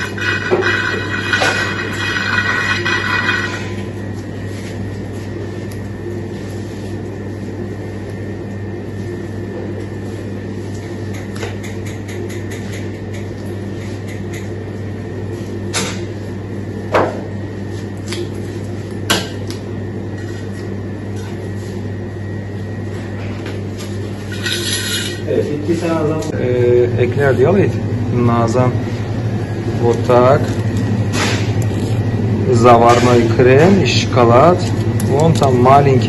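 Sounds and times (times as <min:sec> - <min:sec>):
thin high whine: 0:00.0 - 0:05.3
workshop equipment humming: 0:00.0 - 0:36.0.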